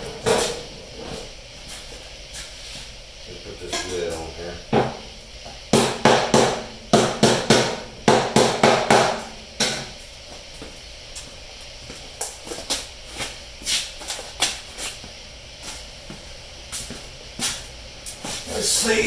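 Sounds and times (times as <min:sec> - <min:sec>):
footsteps on concrete floor: 0:00.0 - 0:03.0, 0:09.8 - 0:18.6.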